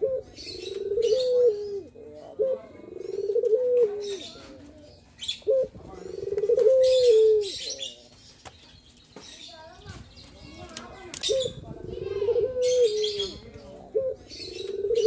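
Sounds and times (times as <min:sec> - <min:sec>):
dove cooing: 0:00.0 - 0:08.0, 0:11.2 - 0:15.0.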